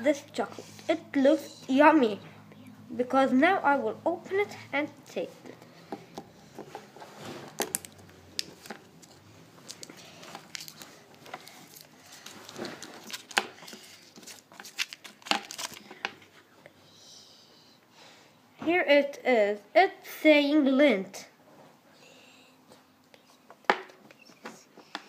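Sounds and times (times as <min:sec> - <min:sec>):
foil wrapper crinkling: 0:09.6 - 0:15.8.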